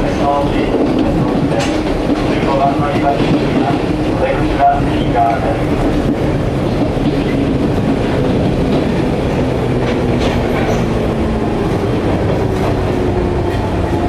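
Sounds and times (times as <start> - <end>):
train wheels and motors rumbling: 0.0 - 14.0
wheels clicking over rail joints: 0.7 - 11.2.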